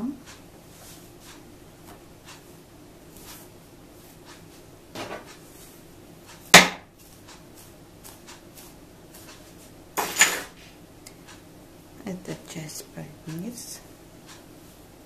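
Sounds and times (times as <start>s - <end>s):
hands rustling in hair: 3.1s - 4.6s
sharp knock: 6.6s - 6.9s.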